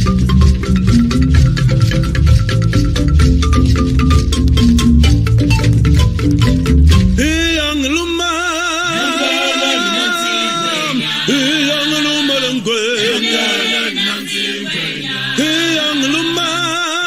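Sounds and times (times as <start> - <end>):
chanted singing voices: 7.2 - 17.0.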